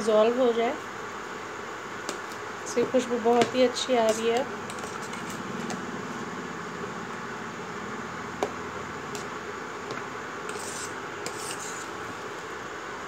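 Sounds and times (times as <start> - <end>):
steady hiss: 0.0 - 13.0
metal spoon scraping pot: 4.1 - 5.4, 10.5 - 11.9.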